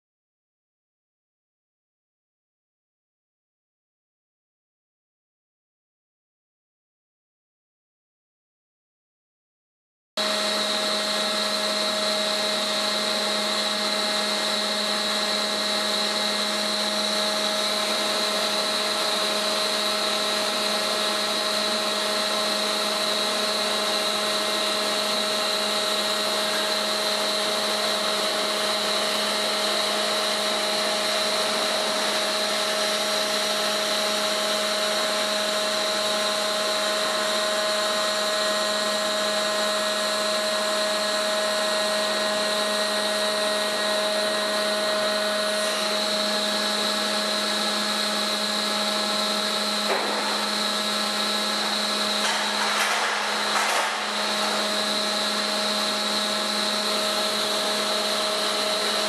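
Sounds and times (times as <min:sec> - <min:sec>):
hydraulic motor hum and whine: 0:10.2 - 0:59.0.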